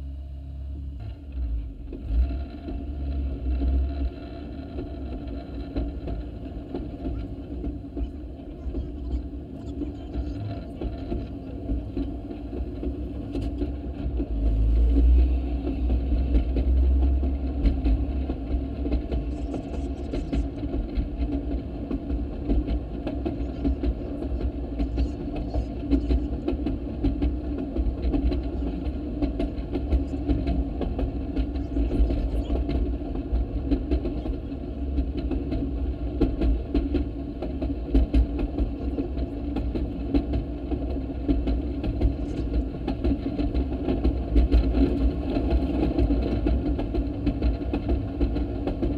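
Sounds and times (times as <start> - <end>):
wheels clicking on rails: 0.9 - 48.9
small engine running: 1.0 - 21.3.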